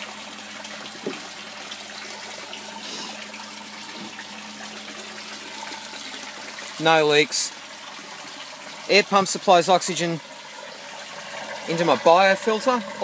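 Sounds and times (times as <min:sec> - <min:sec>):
water running into barrel: 0:00.0 - 0:13.0.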